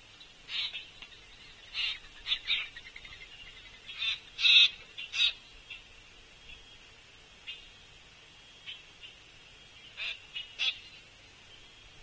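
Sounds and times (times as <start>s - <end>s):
harsh rasping bird calls: 0.4s - 6.7s, 7.4s - 7.8s, 8.6s - 11.1s.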